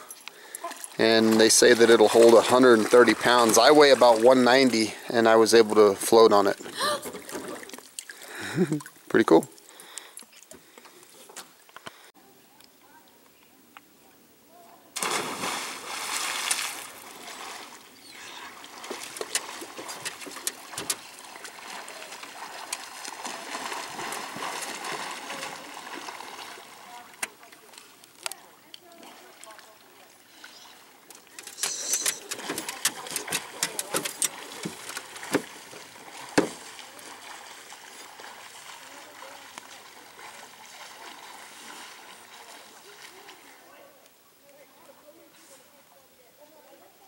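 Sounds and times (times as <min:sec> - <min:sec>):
water lapping and sloshing: 0:00.0 - 0:11.8, 0:15.0 - 0:43.7
person splashing into water: 0:15.0 - 0:17.8, 0:18.5 - 0:26.8.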